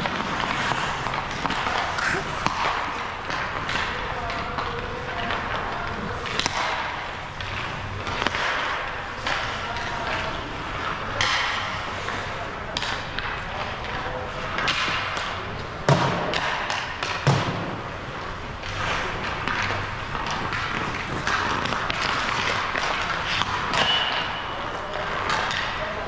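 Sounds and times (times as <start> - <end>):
skate blades scraping on ice: 0.0 - 12.4, 17.7 - 25.9
stick and puck clatter: 0.0 - 26.0.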